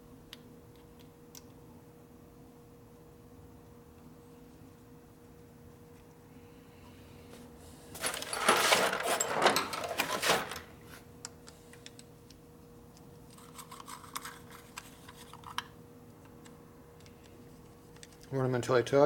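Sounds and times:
metal parts jangling and clinking: 8.0 - 10.6.

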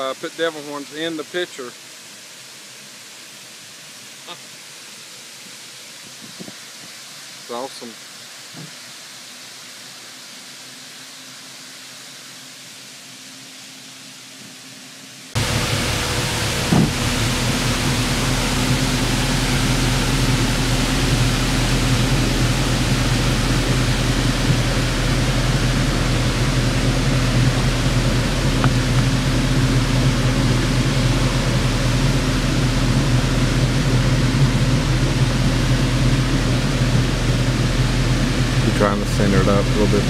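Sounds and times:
low steady hum: 10.6 - 40.0
waterfall rushing: 15.3 - 40.0.

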